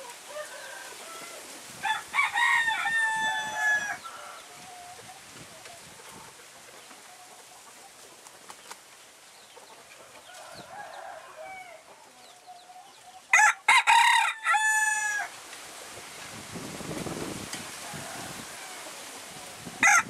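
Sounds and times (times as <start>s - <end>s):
rooster crowing: 0.2s - 4.6s, 10.3s - 11.9s, 13.3s - 15.3s, 17.7s - 19.1s, 19.8s - 20.0s.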